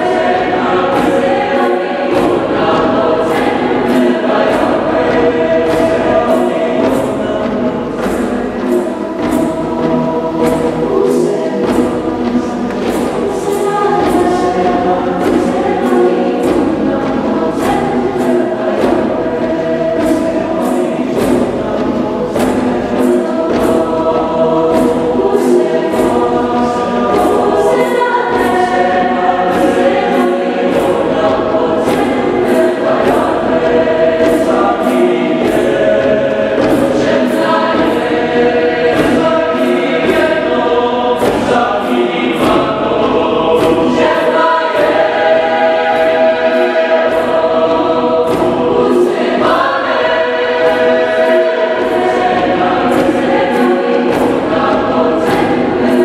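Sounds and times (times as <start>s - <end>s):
mixed choir singing: 0.0s - 56.0s.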